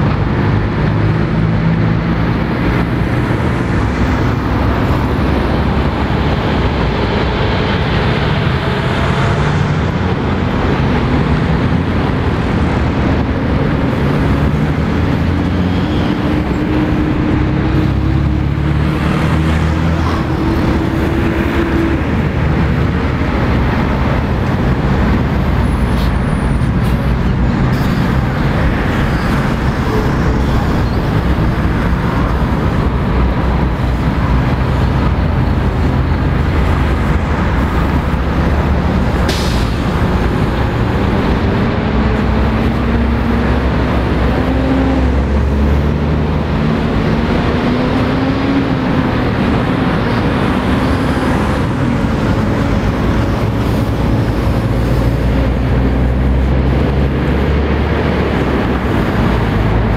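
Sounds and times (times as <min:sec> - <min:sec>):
trucks and cars passing: 0:00.0 - 0:59.9.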